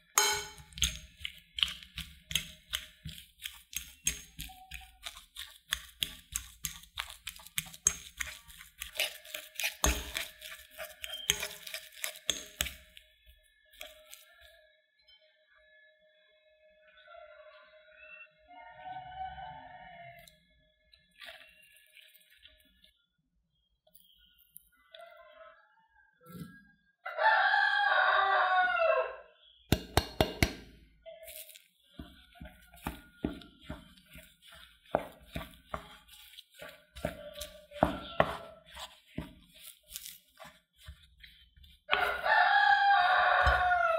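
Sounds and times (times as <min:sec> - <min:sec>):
potatoes squashing: 0:00.0 - 0:13.2, 0:13.8 - 0:14.4, 0:29.7 - 0:43.9
fork clinking against glass bowl: 0:00.1 - 0:01.1, 0:07.5 - 0:12.8
wooden spoon knocking in bowl: 0:00.1 - 0:12.8, 0:29.7 - 0:30.7, 0:32.0 - 0:42.2
glass beaker clinking on glass bowl: 0:00.2 - 0:00.8
rooster crowing: 0:18.5 - 0:20.3, 0:27.0 - 0:29.4, 0:37.0 - 0:38.7, 0:41.9 - 0:43.9.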